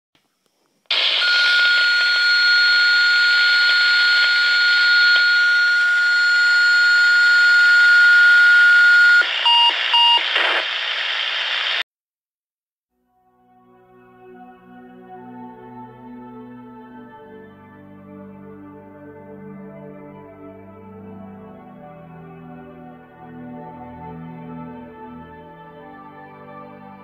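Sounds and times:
radio hiss: 9.1 - 11.8.

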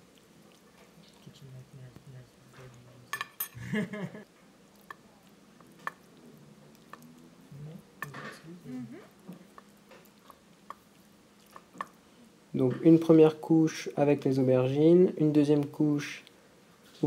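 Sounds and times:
spoon spreading soft food: 0.0 - 3.5, 4.5 - 13.2.

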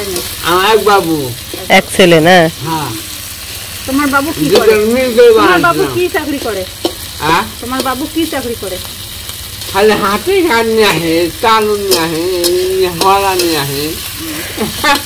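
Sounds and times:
food frying in a pan: 0.0 - 15.0.

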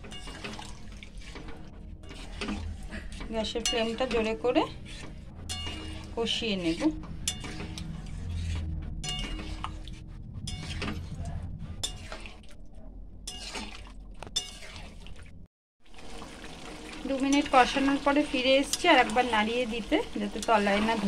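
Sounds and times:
metal spatula scraping curry: 0.0 - 11.2, 11.8 - 12.4, 13.3 - 13.8, 14.4 - 15.0
steady low hum: 1.4 - 13.4.

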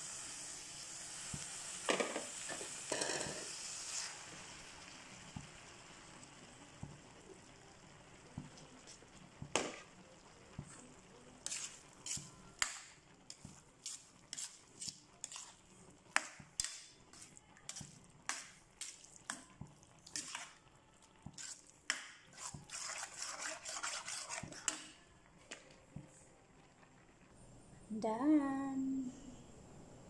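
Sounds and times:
utensil scraping a metal pan: 11.4 - 12.4, 22.3 - 24.9.

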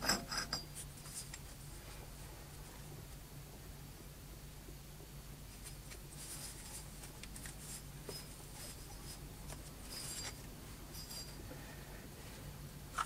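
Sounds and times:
steady low hum: 0.0 - 13.0
metal parts scuffing: 5.6 - 11.4.

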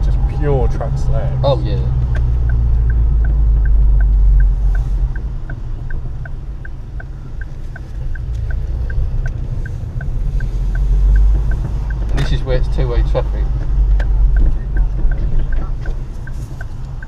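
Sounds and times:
car engine and road rumble: 0.0 - 17.0
turn signal ticking: 0.0 - 17.0.

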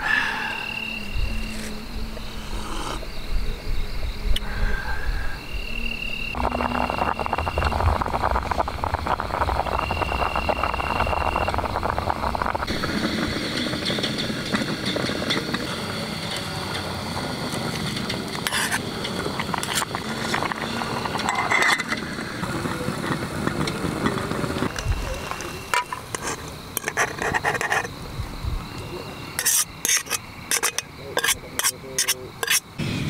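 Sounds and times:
metal pot and lid clinking: 21.2 - 22.0, 29.4 - 32.6.

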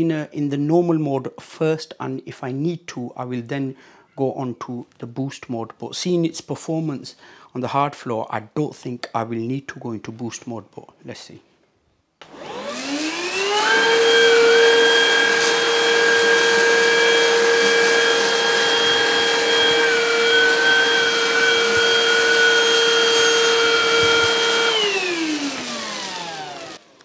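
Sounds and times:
vacuum cleaner motor whine: 12.2 - 27.0.

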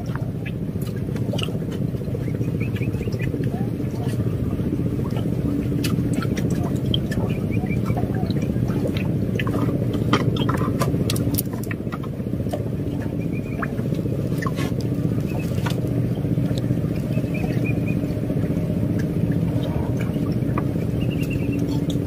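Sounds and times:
small boat engine running: 0.0 - 22.0
sharp clicks and ticks: 9.0 - 12.6.

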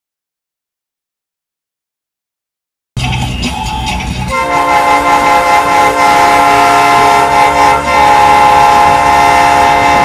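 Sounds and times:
multi-note horn blast: 4.3 - 10.0.

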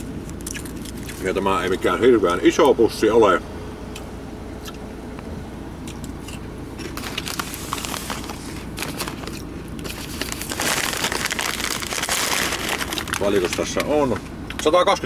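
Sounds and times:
crisp bag crinkling: 6.8 - 13.9.

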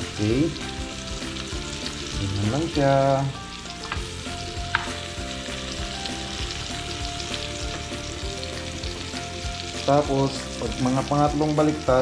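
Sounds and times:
steak sizzling in a frying pan: 0.0 - 12.0.

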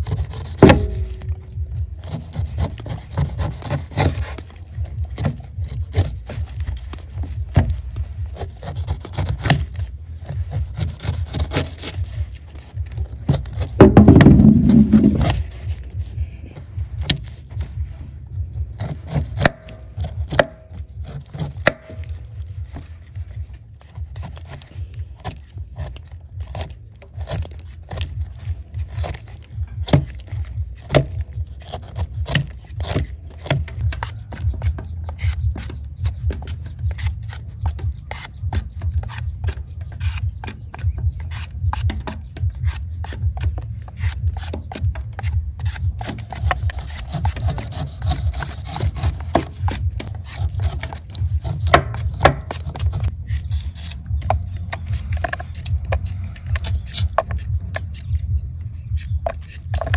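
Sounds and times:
low rumble: 12.0 - 18.8, 52.6 - 59.9.

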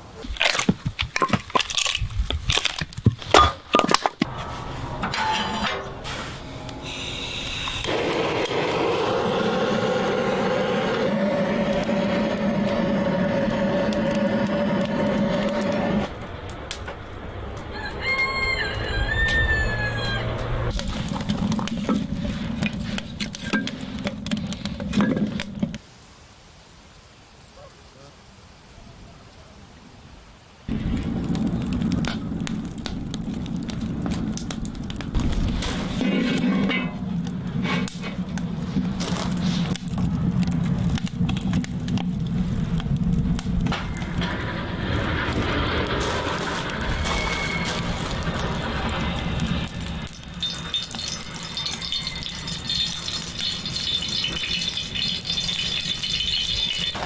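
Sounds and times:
logs crackling and popping: 0.0 - 25.8, 30.7 - 57.0
low fire rumble: 0.0 - 25.8, 30.6 - 57.0
rooster crowing: 17.6 - 20.7, 51.2 - 52.7
firewood clattering in stove: 33.6 - 57.0.

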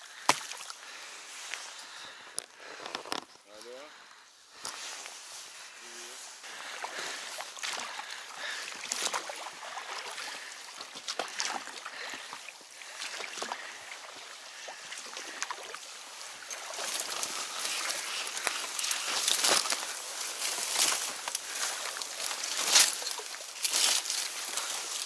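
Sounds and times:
oars splashing and knocking: 0.0 - 0.8, 6.5 - 25.0
reeds scraping along boat: 4.5 - 25.0.

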